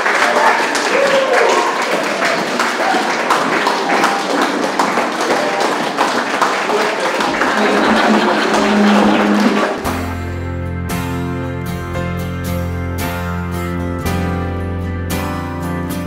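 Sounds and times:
people clapping: 0.0s - 10.2s
acoustic guitar music: 7.5s - 15.8s
background music: 7.6s - 16.0s.

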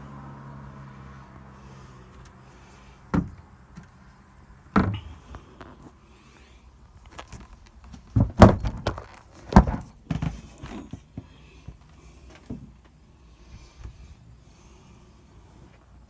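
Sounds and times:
panel knocking and thumping: 8.1s - 10.4s.

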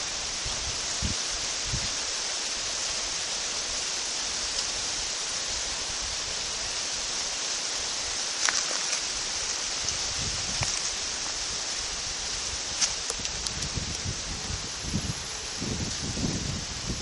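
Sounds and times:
steady hiss: 0.0s - 17.0s
faint clicks: 12.8s - 14.1s.

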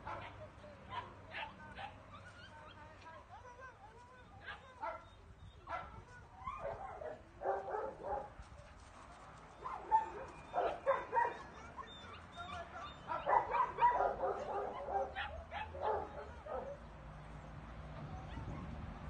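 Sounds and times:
puppies yipping and whining: 1.8s - 2.8s, 9.6s - 16.8s.

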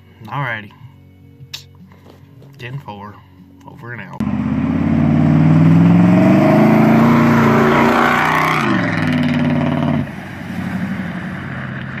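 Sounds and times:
pickup truck engine revving: 4.2s - 12.0s.

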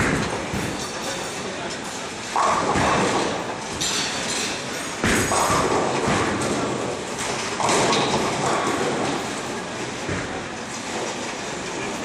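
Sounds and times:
bowling balls rumbling: 2.3s - 3.8s, 5.0s - 12.0s.

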